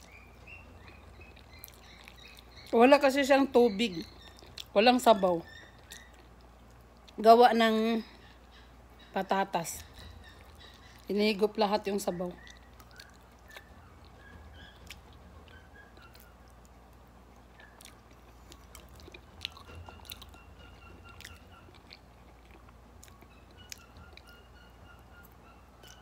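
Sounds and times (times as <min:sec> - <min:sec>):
person chewing noodles: 0:00.0 - 0:02.8, 0:04.2 - 0:04.7, 0:12.4 - 0:24.3
steady low hum: 0:00.0 - 0:26.0.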